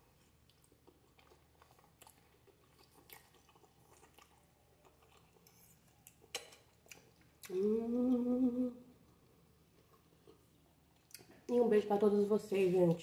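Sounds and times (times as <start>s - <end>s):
chewing and mouth clicks: 0.1s - 7.6s, 9.1s - 11.5s
woman humming mmm: 7.4s - 8.9s.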